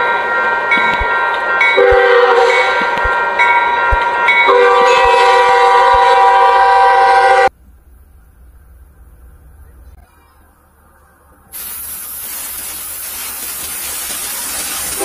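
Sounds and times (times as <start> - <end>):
locomotive air horn chord: 0.0 - 7.5.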